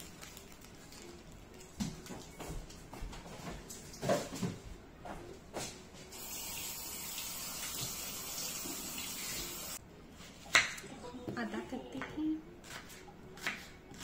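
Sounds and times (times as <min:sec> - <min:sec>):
tap water running into sink: 0:06.2 - 0:09.8.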